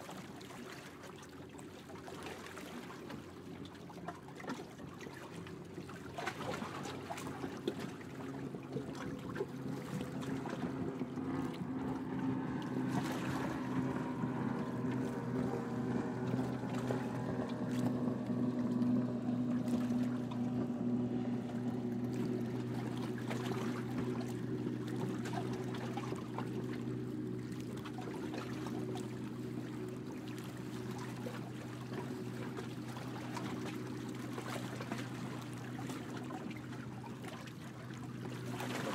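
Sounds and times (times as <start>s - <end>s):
boat engine running: 0.0s - 38.9s.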